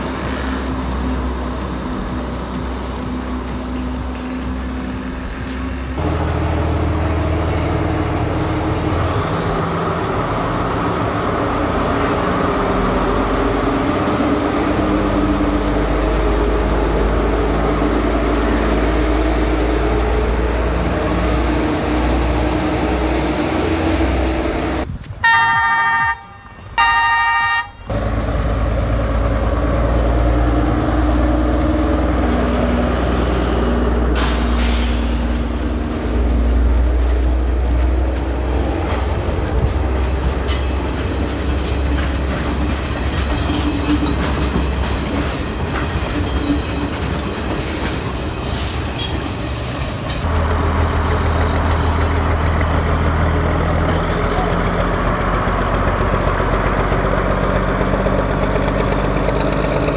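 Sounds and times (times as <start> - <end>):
diesel train engine droning: 0.0 - 59.9
train horn blasts: 25.2 - 27.9.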